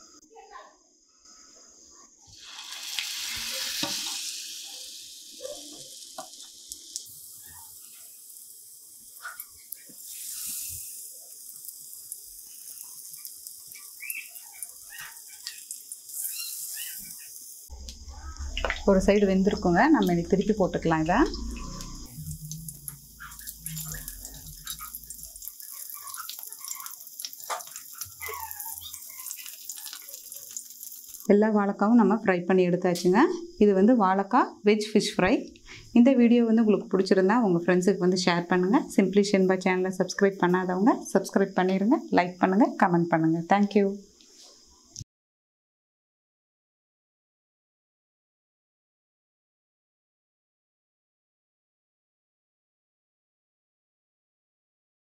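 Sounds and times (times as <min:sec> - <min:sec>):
food sizzling in hot oil: 0:02.3 - 0:31.3
oil crackles: 0:02.4 - 0:17.7, 0:21.7 - 0:31.3
spatula scraping griddle: 0:09.2 - 0:11.7.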